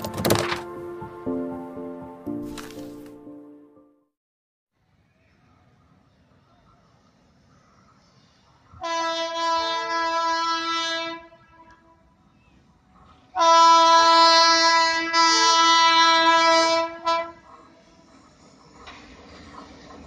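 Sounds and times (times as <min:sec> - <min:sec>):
train horn blasts: 0:08.8 - 0:12.2, 0:13.3 - 0:17.5.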